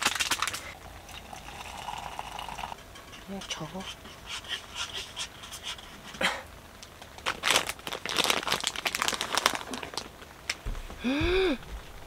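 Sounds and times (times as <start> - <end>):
plastic wrapper crinkling: 0.0 - 0.8, 6.9 - 10.6.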